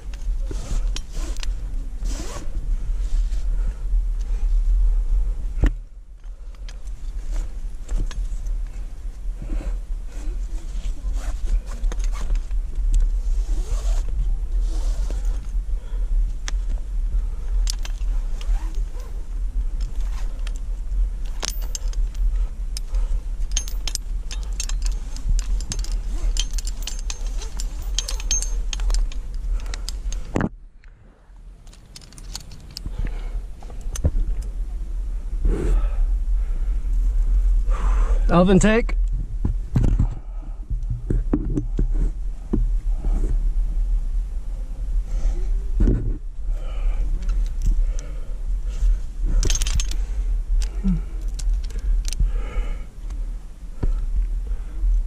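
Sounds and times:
carabiners jangling on chain: 0.0s - 1.5s, 17.4s - 30.4s, 31.6s - 33.2s, 47.0s - 48.2s, 48.8s - 52.2s
low microphone rumble: 0.0s - 55.0s.

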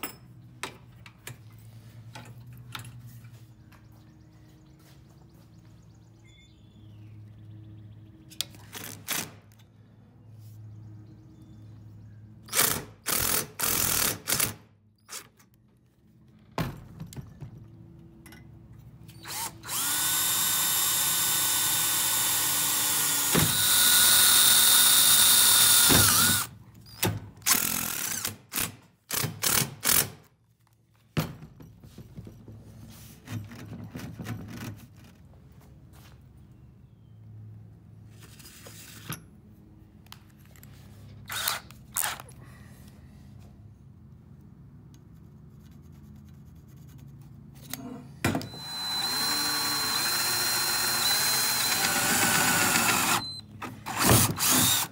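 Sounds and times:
cordless drill drilling metal: 19.2s - 26.5s, 27.5s - 28.4s, 41.3s - 42.2s, 48.4s - 54.9s.

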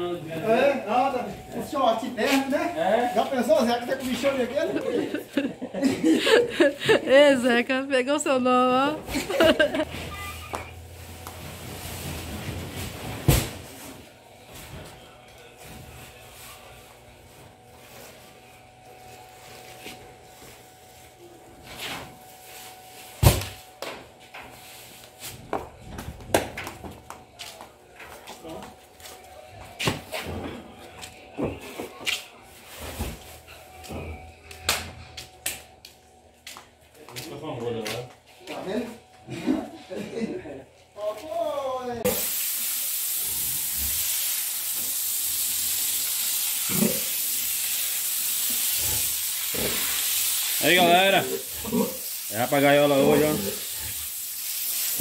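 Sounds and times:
footsteps on concrete floor: 23.8s - 39.2s
hose water spraying: 42.1s - 55.0s.

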